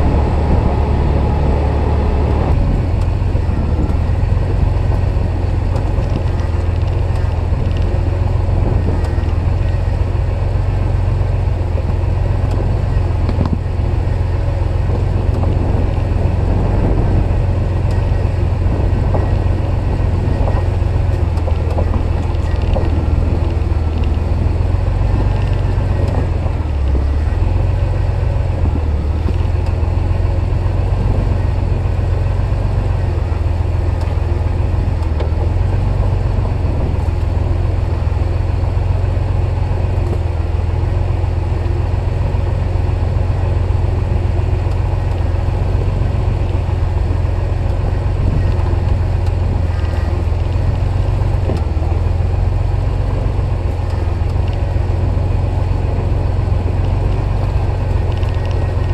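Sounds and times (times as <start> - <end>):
off-road vehicle engine droning: 0.0 - 58.9.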